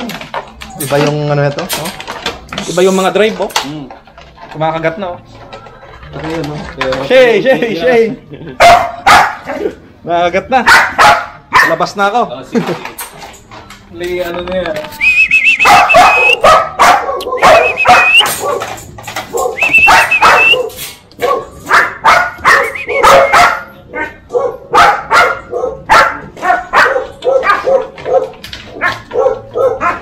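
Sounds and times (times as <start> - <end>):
puppies barking and yipping: 8.5 - 9.5, 10.7 - 11.9, 15.0 - 30.0.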